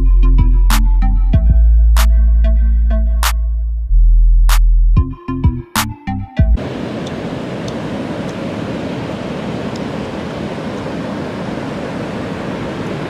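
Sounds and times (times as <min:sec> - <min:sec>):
ocean surf breaking: 0:06.6 - 0:13.0.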